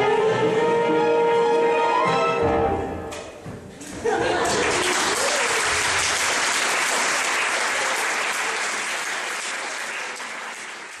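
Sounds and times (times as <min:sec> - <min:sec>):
audience applauding: 0:04.0 - 0:11.0.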